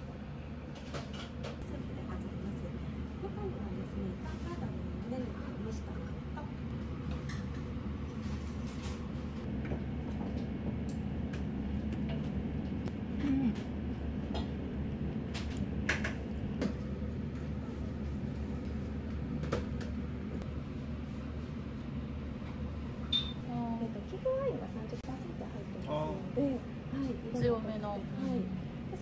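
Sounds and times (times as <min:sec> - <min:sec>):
low hum of dining room: 0:00.0 - 0:29.0
spoon clinking in ceramic bowl: 0:23.1 - 0:23.4
tableware clinking: 0:23.1 - 0:23.4.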